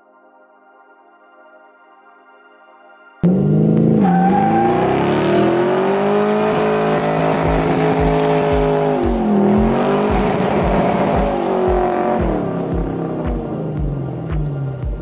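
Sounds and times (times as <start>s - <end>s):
car engine revving high: 3.2s - 15.0s
tyre squeal: 3.9s - 6.5s
low thumping beat: 5.0s - 15.0s.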